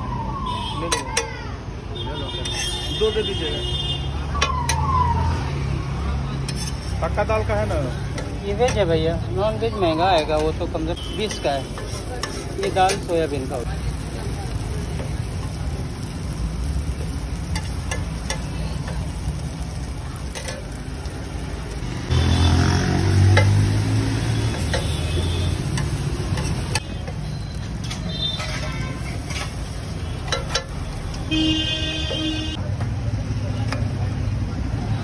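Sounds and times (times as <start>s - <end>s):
street traffic: 0.0s - 35.0s
metal spatula scraping griddle: 2.4s - 3.0s, 6.4s - 14.1s, 23.3s - 31.3s
frying sizzle: 2.5s - 32.6s
vehicle engine passing: 19.1s - 26.8s.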